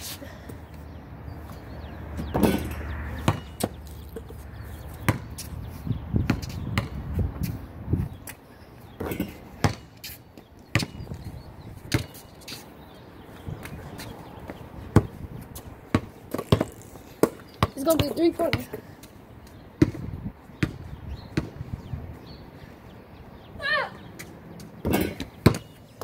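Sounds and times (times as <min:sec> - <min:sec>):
basketball bouncing: 0:02.2 - 0:04.3, 0:05.0 - 0:05.5, 0:06.2 - 0:07.0, 0:09.0 - 0:09.9, 0:10.7 - 0:11.2, 0:11.9 - 0:12.2, 0:14.9 - 0:15.2, 0:15.9 - 0:18.8, 0:19.8 - 0:21.6, 0:24.8 - 0:25.8.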